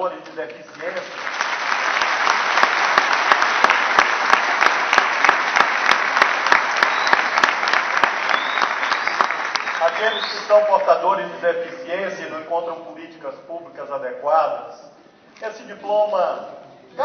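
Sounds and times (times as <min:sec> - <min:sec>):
audience applauding: 0:00.7 - 0:11.0
speaker talking: 0:09.8 - 0:17.0.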